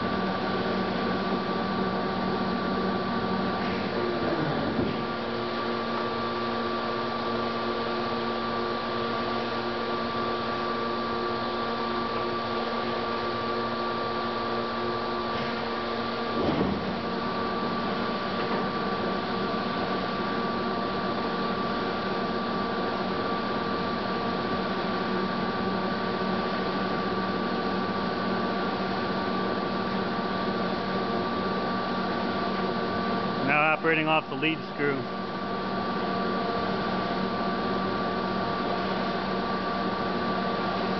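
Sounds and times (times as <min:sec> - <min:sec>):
lathe humming with gear whine: 0:00.0 - 0:40.9.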